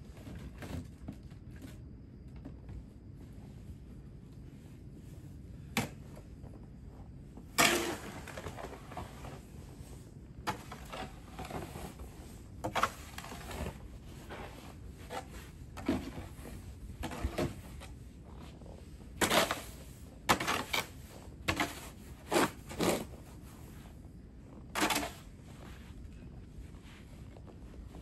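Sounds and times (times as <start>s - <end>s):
snow shovel scraping: 7.6s - 9.4s, 10.5s - 23.8s, 24.7s - 25.9s.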